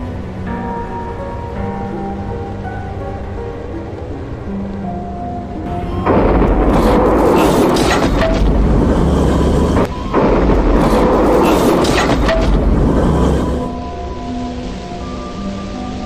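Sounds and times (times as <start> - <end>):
loud low rumbling: 5.7 - 13.8.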